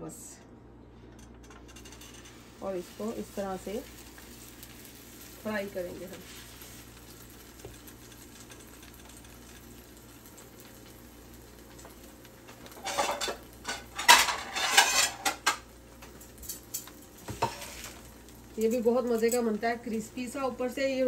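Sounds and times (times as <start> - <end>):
food sizzling in a pan: 1.8 - 21.0
utensil scraping a pan: 12.7 - 15.5, 17.2 - 18.0.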